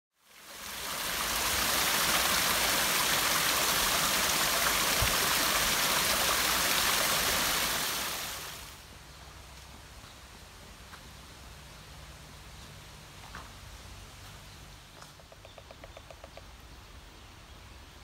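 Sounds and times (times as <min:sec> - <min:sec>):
waterfall splashing over rocks: 0:00.2 - 0:08.8.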